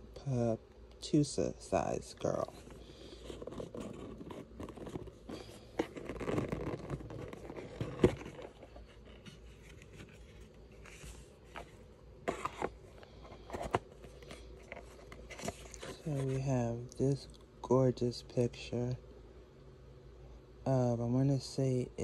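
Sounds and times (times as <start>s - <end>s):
cardboard scraping and rustling: 2.2s - 16.5s.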